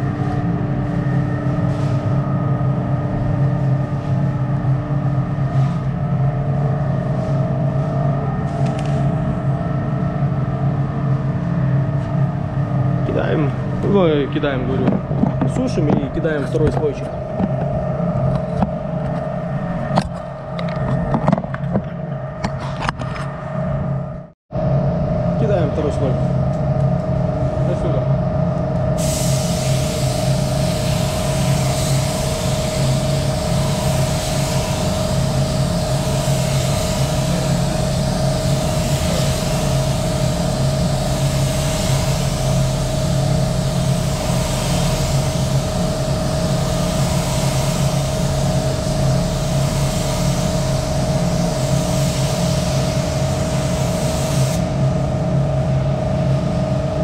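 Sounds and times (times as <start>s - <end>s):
machine hum: 0.0s - 57.0s
spray gun hissing: 29.0s - 54.8s.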